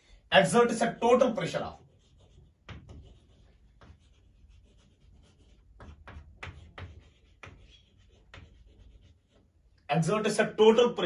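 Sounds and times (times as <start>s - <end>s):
pen scratching while writing: 1.8s - 9.6s.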